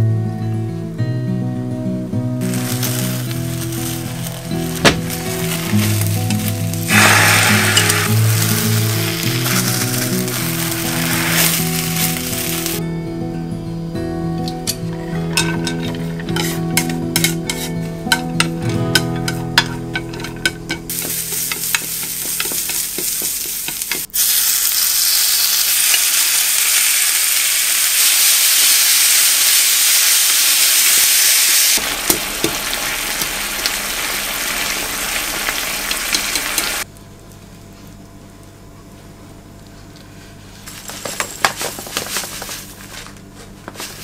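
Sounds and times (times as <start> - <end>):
chopsticks stirring food: 2.4 - 12.8, 19.0 - 24.1
food sizzling in a frying pan: 2.4 - 12.8, 20.9 - 36.8.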